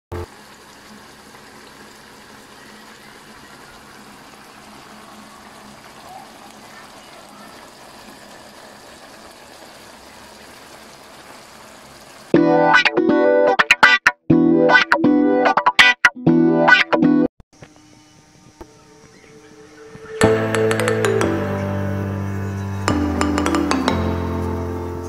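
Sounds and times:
stew bubbling in a pan: 0:00.2 - 0:12.3.

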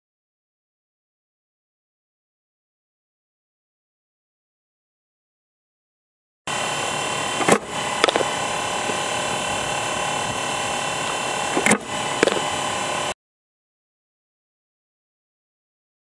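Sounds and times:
steady outdoor hiss: 0:06.5 - 0:13.2
bat knocking softball: 0:07.4 - 0:09.3, 0:11.6 - 0:12.6.

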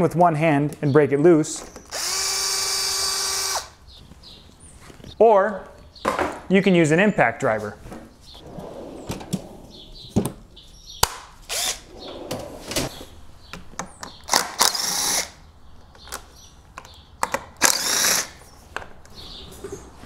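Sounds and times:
impact driver spinning screws: 0:01.9 - 0:03.7, 0:17.6 - 0:18.4.

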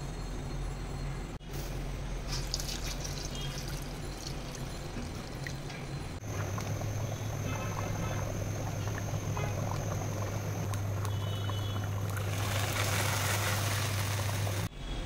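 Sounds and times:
steady low hum: 0:00.0 - 0:15.0
pot boiling and bubbling: 0:01.6 - 0:14.7
ladle skimming splashing: 0:06.2 - 0:14.7.

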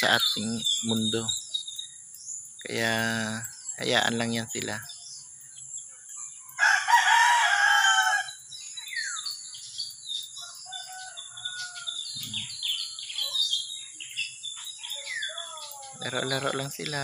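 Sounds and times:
small birds chirping: 0:00.0 - 0:17.0
rooster crowing: 0:06.5 - 0:08.4, 0:10.4 - 0:13.1.

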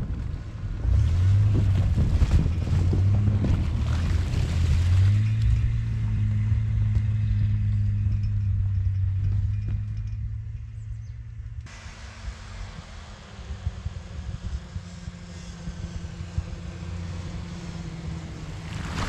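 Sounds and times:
engine pulling hard under load: 0:00.0 - 0:19.0
ice crunching under tyres: 0:00.9 - 0:05.7, 0:18.6 - 0:19.0.

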